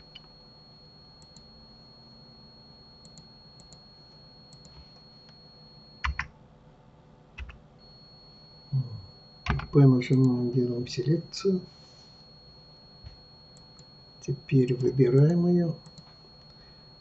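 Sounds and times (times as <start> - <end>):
faint high whine: 0.0 - 17.0
keyboard and mouse clicks: 7.4 - 7.6, 9.5 - 10.3.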